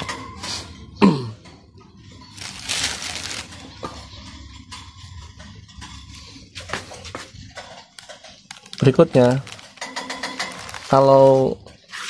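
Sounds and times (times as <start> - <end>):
plastic wrapping crinkling: 2.3 - 3.8, 7.9 - 11.5.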